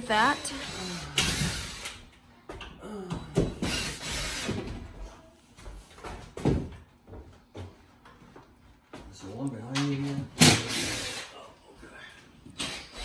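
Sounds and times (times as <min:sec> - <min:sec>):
cordless drills driving screws: 0:00.1 - 0:01.9, 0:03.7 - 0:04.5, 0:10.4 - 0:11.3.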